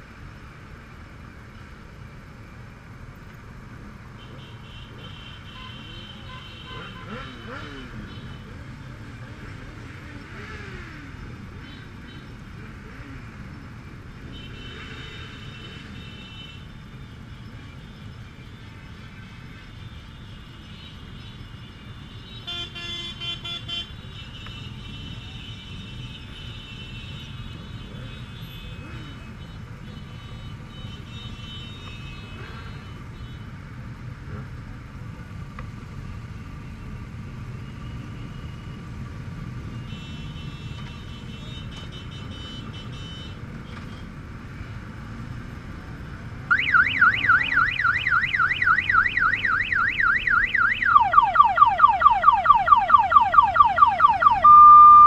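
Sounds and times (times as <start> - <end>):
road noise: 0.0 - 55.0
warbling electronic alarm: 46.5 - 55.0.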